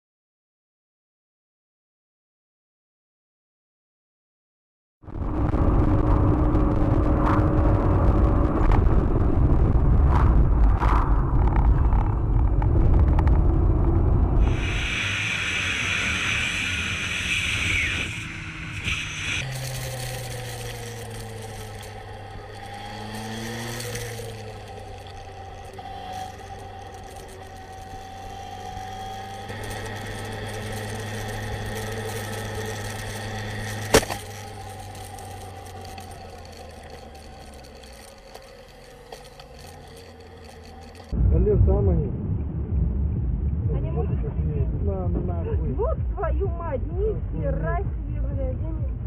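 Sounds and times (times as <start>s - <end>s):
loud rushing noise: 5.1s - 22.0s
motorcycle engine running: 5.1s - 41.2s, 42.6s - 49.0s.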